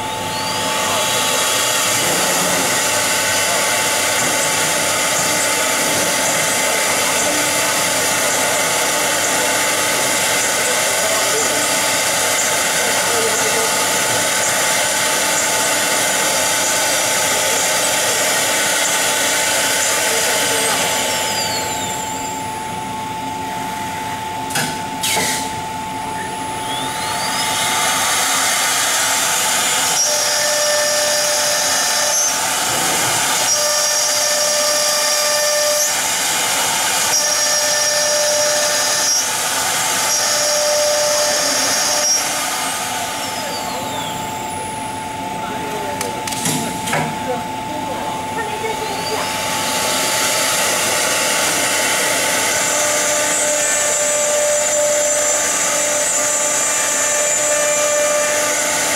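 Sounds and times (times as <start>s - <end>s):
router spindles whirring: 0.0s - 58.9s.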